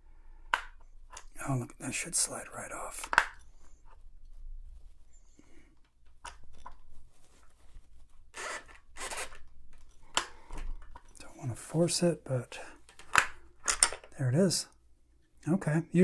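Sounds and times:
sewing machine handwheel scraping: 0:08.3 - 0:09.4.

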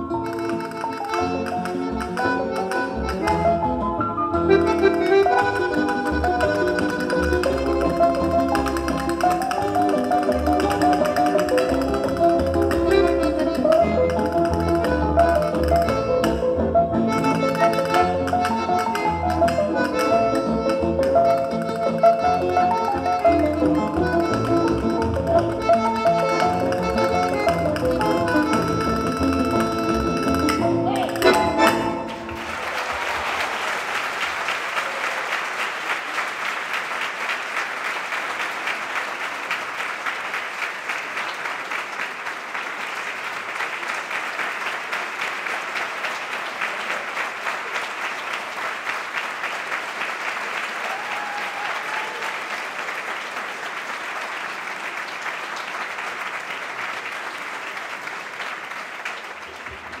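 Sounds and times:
audience applauding: 0:00.0 - 0:16.4, 0:17.0 - 1:00.0
bandoneon chord: 0:00.1 - 0:32.4.

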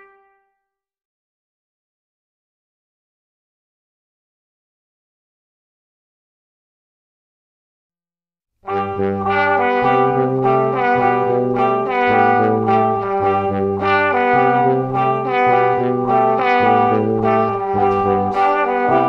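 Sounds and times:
instrumental music with brassy melody: 0:00.0 - 0:00.5, 0:08.6 - 0:19.0.

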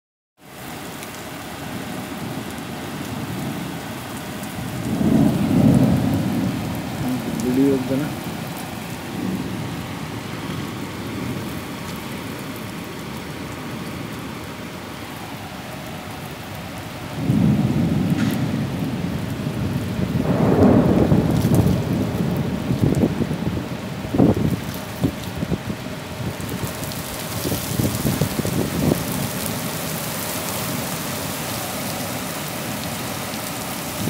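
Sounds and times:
rain on paving stones: 0:00.4 - 0:34.0
low rumble of thunder: 0:04.4 - 0:11.7, 0:16.8 - 0:31.5.

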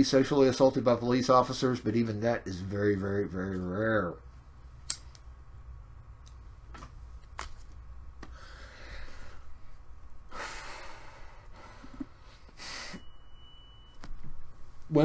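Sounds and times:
steady low hum: 0:00.0 - 0:15.0
man breathing out heavily: 0:08.3 - 0:09.5.

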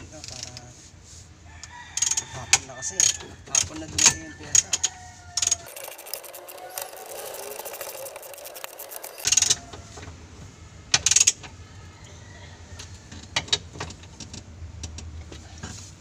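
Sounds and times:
ratchet wrench clicking: 0:02.0 - 0:02.2, 0:03.0 - 0:09.7.

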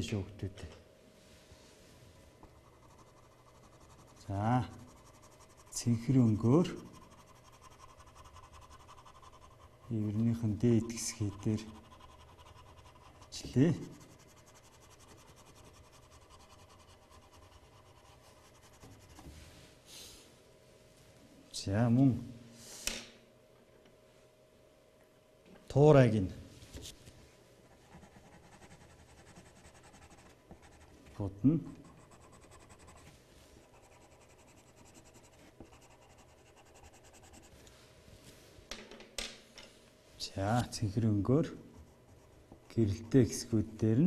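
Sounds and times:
pencil scratching on paper: 0:02.4 - 0:19.3, 0:27.6 - 0:37.6, 0:41.7 - 0:43.5.

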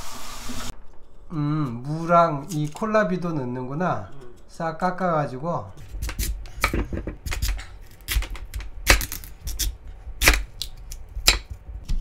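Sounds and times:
knife chopping on wooden board: 0:05.8 - 0:12.0.

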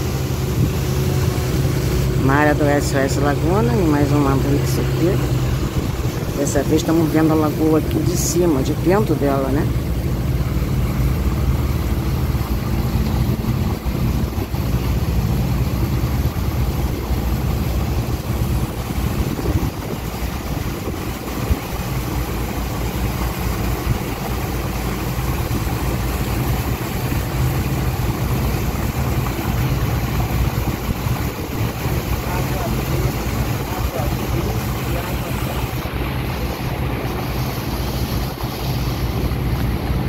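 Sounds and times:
boat engine humming: 0:00.0 - 0:40.0
constant rushing noise: 0:00.0 - 0:40.0.

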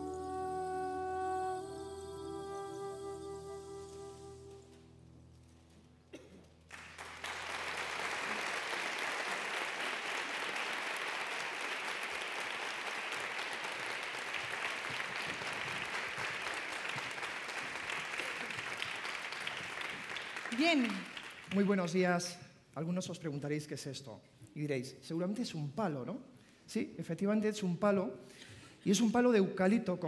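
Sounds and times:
music: 0:00.0 - 0:10.0
audience applause: 0:06.7 - 0:22.0.

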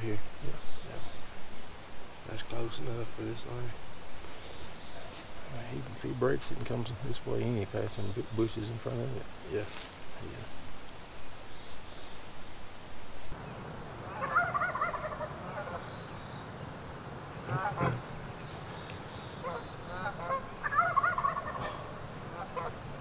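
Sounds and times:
turkey yelping: 0:14.0 - 0:15.9, 0:17.4 - 0:18.1, 0:19.4 - 0:22.8.

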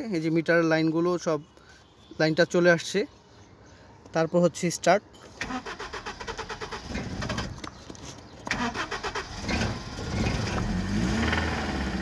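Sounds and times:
starter motor cranking engine: 0:05.4 - 0:07.6, 0:08.5 - 0:10.8.

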